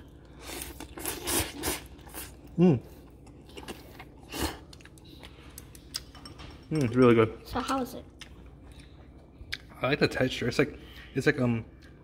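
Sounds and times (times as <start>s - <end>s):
person slurping noodles: 0.4s - 2.8s.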